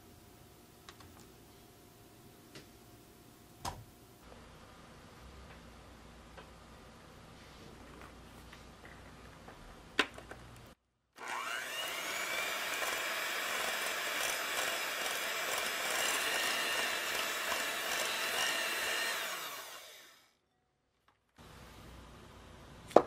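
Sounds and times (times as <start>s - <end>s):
electric hand mixer whining: 11.2s - 20.3s.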